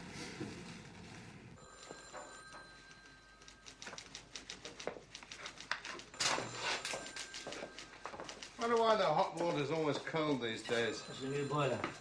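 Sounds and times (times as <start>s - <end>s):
typewriter keys clacking: 2.8s - 10.1s.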